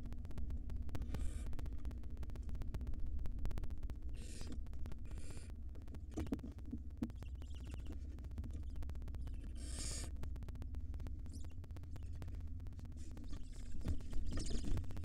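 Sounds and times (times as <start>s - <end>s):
steady low hum: 0.0s - 15.0s
owl chicks hissing: 4.2s - 5.4s, 9.3s - 10.1s.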